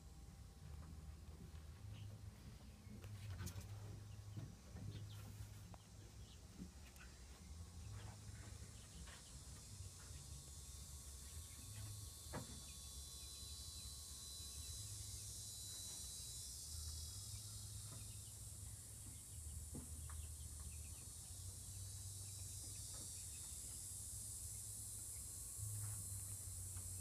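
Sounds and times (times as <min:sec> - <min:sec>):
insects buzzing: 0:05.7 - 0:27.0.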